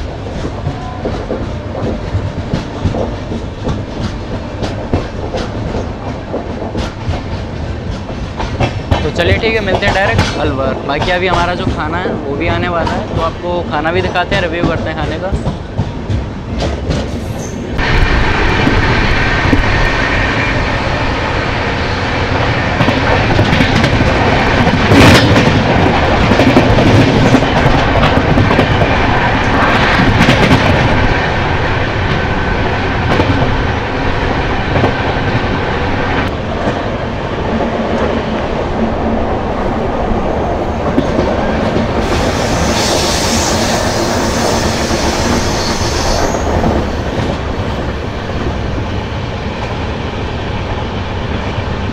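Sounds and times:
train wheels rumbling on track: 0.0s - 51.9s.

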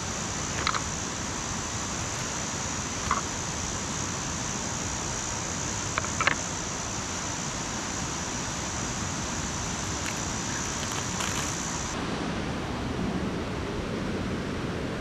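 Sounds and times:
high hiss: 0.0s - 12.0s
rushing outdoor background noise: 0.0s - 15.0s.

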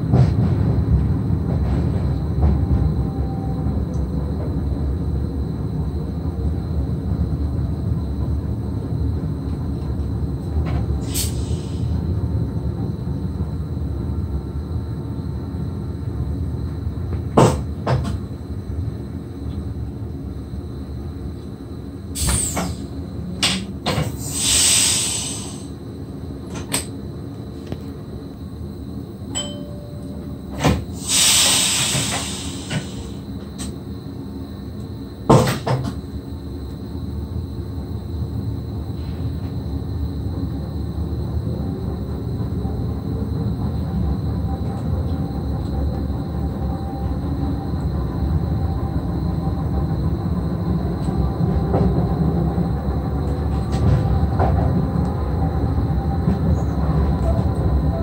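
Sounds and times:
train running rumble: 0.0s - 58.0s
hissing bursts: 24.2s - 25.7s, 30.9s - 33.2s.

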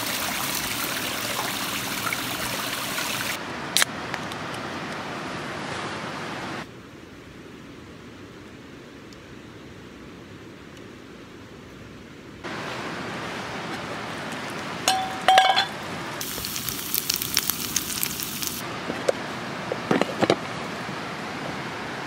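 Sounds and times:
pan knocking on pan: 14.9s - 15.7s
metal clinks: 14.9s - 15.8s
loud sizzling in a frying pan: 16.2s - 18.6s.

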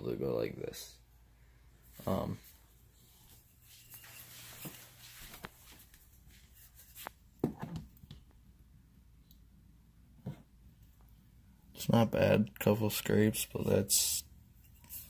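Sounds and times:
soft rustling handling noise: 1.8s - 7.4s.

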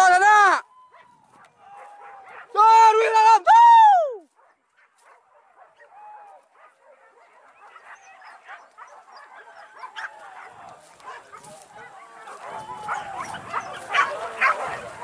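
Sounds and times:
dogs yelping and baying: 0.9s - 2.5s, 6.6s - 15.0s.

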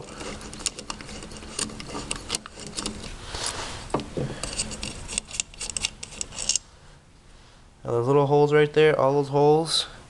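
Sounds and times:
metal parts clicking and tapping: 0.0s - 3.2s, 3.9s - 6.6s.

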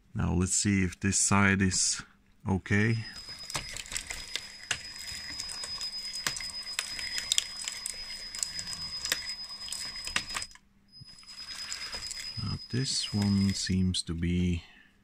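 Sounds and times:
plastic track links clicking and rattling: 3.1s - 13.7s.

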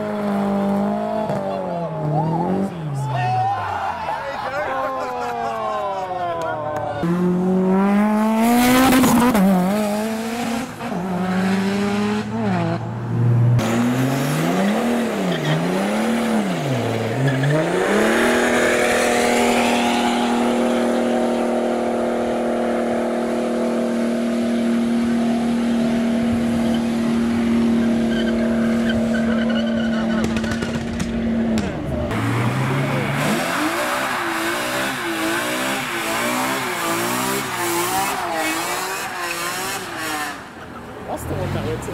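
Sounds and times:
car engine revving: 6.8s - 41.9s
tyre squeal: 27.8s - 31.0s.

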